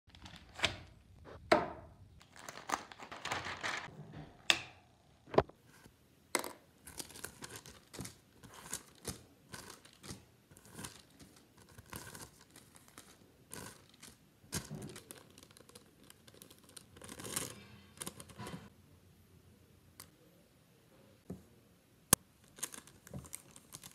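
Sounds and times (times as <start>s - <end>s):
paper crinkling: 0.1s - 1.0s, 2.2s - 3.9s, 6.8s - 18.7s, 22.4s - 23.9s.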